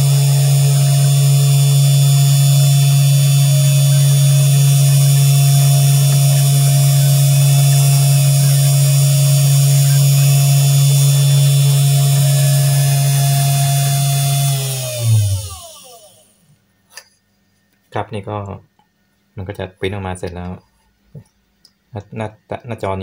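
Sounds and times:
spindle motor humming with whine: 0.0 - 16.6.

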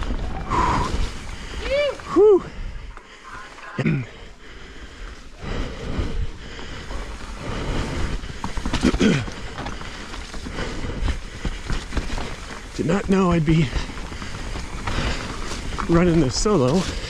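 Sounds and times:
bike rattling over ground: 0.0 - 2.2, 6.4 - 17.0
bike tyre noise: 0.0 - 17.0.

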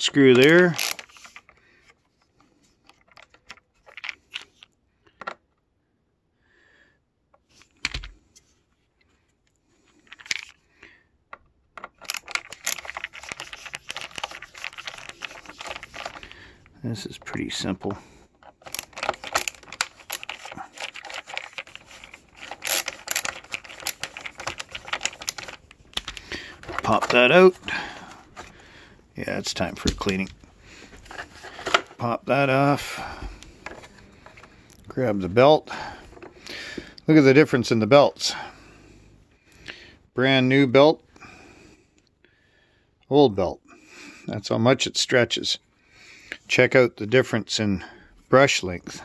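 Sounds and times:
screwdriver clicks and ticks: 22.4 - 26.2.

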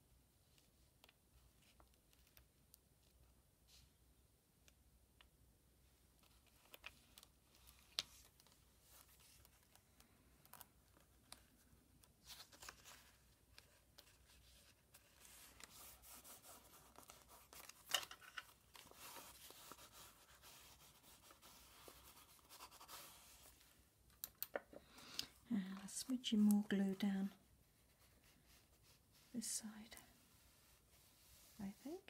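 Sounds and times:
small clicks and taps: 0.5 - 3.2, 24.1 - 25.3
paper being rubbed: 18.8 - 23.5.

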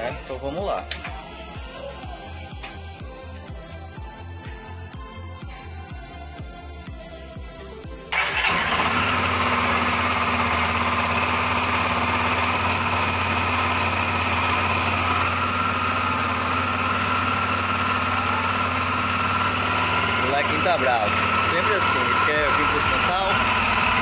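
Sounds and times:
motorcycle engine idling: 8.1 - 24.0.

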